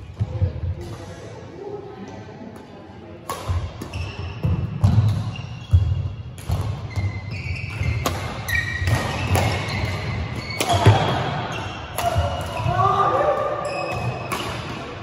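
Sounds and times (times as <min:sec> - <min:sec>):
rackets striking shuttlecock: 0:03.2 - 0:05.4, 0:06.4 - 0:06.9, 0:07.6 - 0:12.7, 0:13.9 - 0:14.9
shoe squeaks: 0:03.8 - 0:06.2, 0:06.8 - 0:12.6, 0:13.6 - 0:14.4.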